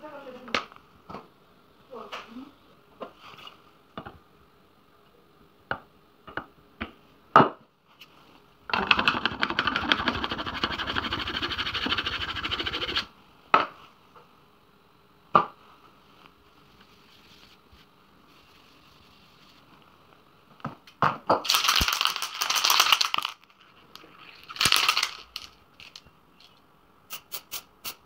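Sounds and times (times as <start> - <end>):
pad rubbing on panel: 9.8 - 13.1.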